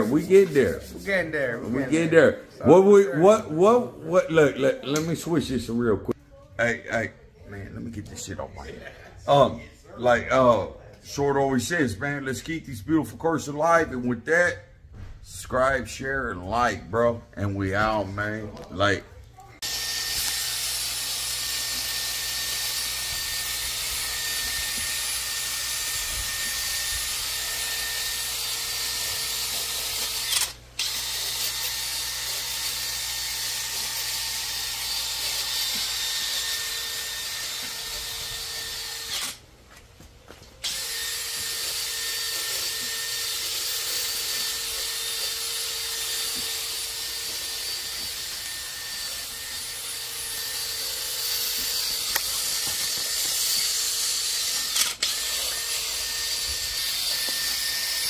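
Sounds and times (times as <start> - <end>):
rotary power tool whirring: 19.6 - 39.4, 40.6 - 58.0.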